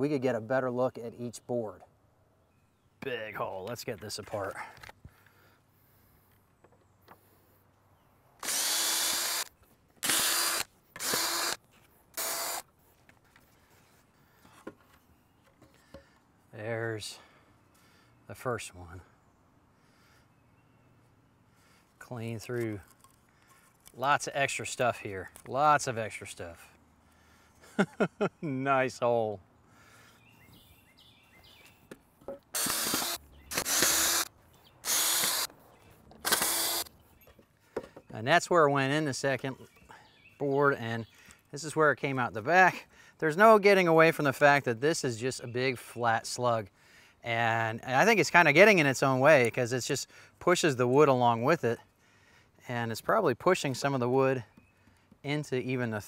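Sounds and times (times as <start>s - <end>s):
cordless drill running: 8.4s - 11.6s, 12.2s - 12.6s, 32.6s - 35.5s, 36.2s - 36.9s.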